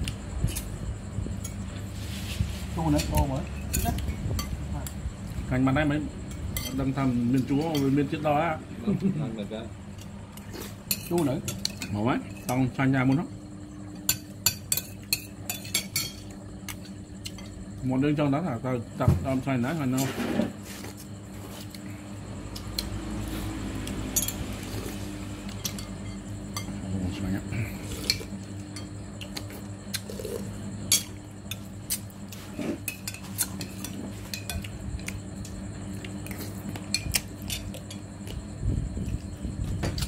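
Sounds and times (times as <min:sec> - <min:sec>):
steady low hum: 0:00.0 - 0:40.0
utensils clinking against dishes: 0:02.8 - 0:05.0, 0:06.3 - 0:08.3, 0:09.9 - 0:13.3, 0:13.9 - 0:17.6, 0:24.1 - 0:26.8, 0:30.9 - 0:35.2, 0:36.2 - 0:38.1.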